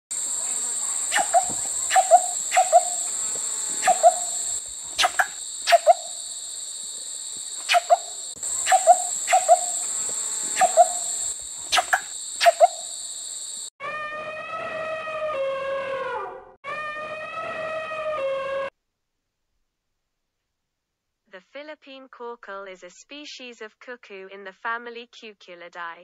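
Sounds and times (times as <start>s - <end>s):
insects buzzing: 0.1s - 13.7s
bird calling in short notes: 1.1s - 3.1s, 3.8s - 4.4s, 7.7s - 9.8s, 10.6s - 11.1s.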